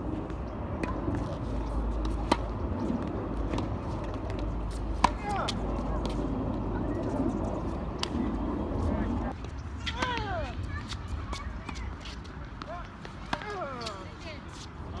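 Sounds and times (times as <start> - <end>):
low outdoor rumble: 0.0 - 11.9
tennis balls struck by rackets: 0.7 - 6.4, 7.8 - 8.4, 12.5 - 14.0.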